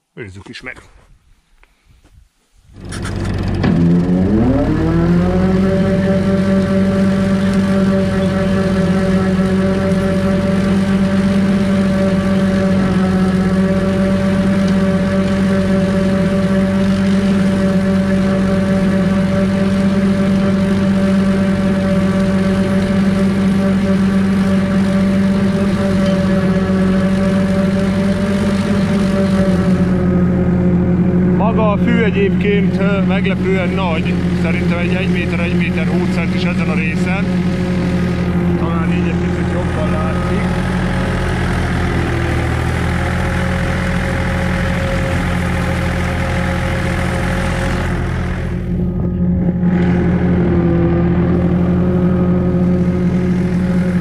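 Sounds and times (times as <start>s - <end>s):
rotary mulcher cutting grass: 2.7s - 54.0s
tractor diesel engine running: 2.7s - 54.0s.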